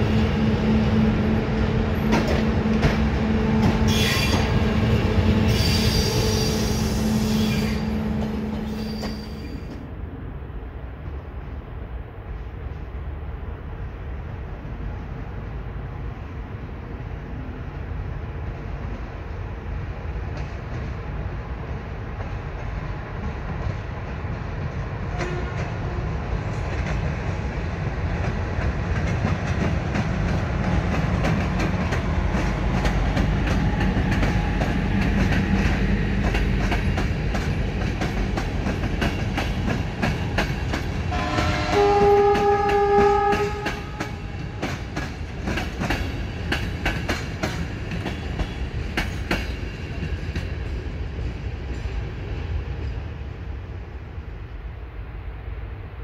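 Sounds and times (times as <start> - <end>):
train rumbling past: 0.0 - 56.0
train horn: 0.3 - 9.6, 25.1 - 26.2, 41.1 - 44.6
wheels clacking over rail joints: 1.9 - 6.5, 28.0 - 53.1.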